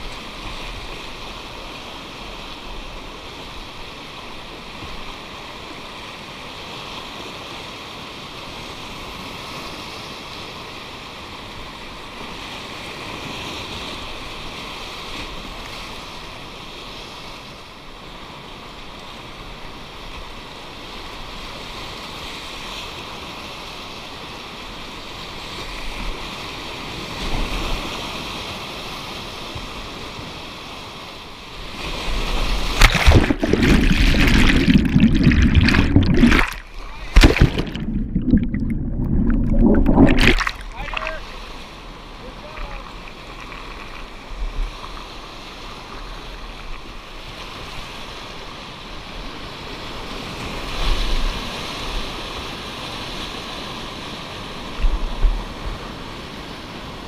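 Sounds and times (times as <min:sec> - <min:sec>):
whitewater rushing in a river: 0:30.8 - 0:44.3.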